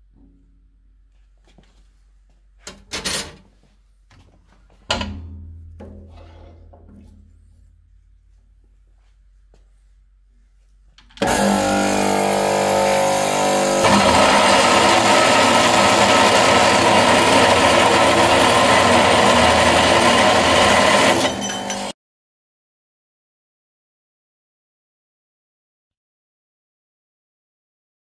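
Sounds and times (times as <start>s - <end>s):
cold saw motor humming: 11.2s - 21.9s
saw blade cutting steel: 11.2s - 22.0s.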